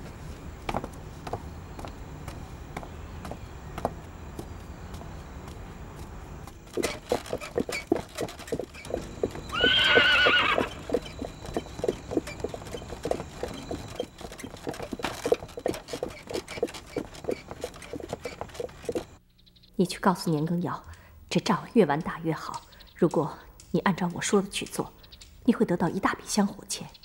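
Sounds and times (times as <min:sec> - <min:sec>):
horse hooves clopping: 0:00.0 - 0:19.2
horse neighing: 0:08.9 - 0:11.2.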